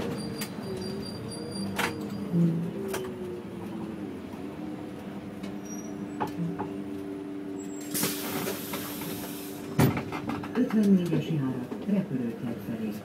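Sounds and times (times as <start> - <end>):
bus engine humming: 0.0 - 13.0
compressed air hiss: 7.9 - 9.7.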